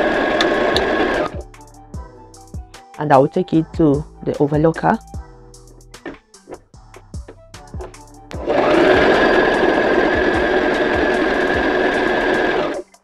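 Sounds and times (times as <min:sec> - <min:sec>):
sewing machine running: 0:00.0 - 0:01.4, 0:08.4 - 0:13.0.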